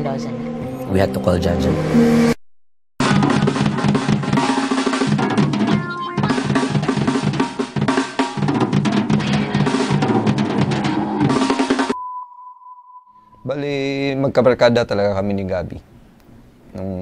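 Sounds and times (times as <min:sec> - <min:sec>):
drum kit played fast: 0:03.0 - 0:12.0.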